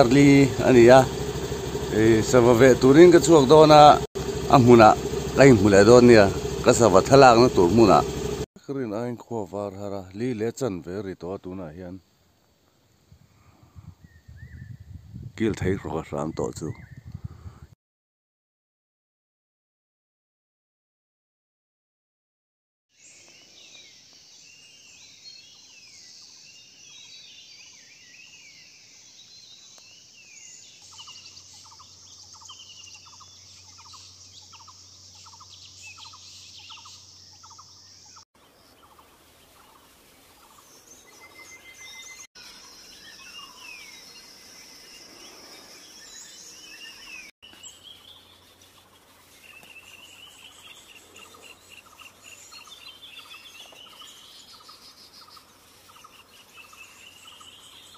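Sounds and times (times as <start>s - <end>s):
repeated low bird call: 0.0s - 8.4s
wild birds calling and singing: 0.0s - 8.4s, 23.0s - 57.9s
steady high buzz: 0.0s - 8.5s.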